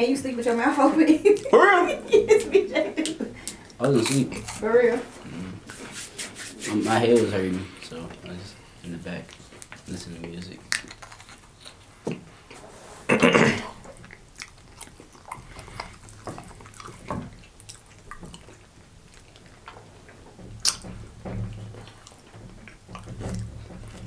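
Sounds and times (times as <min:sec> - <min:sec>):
chewing crackers: 0:03.0 - 0:05.6, 0:07.8 - 0:12.6, 0:13.6 - 0:21.0.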